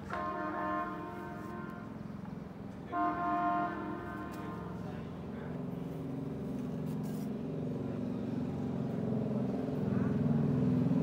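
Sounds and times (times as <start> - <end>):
vehicle horn blast: 0.0 - 2.1, 2.9 - 5.0
vehicle engine hum: 0.0 - 11.0.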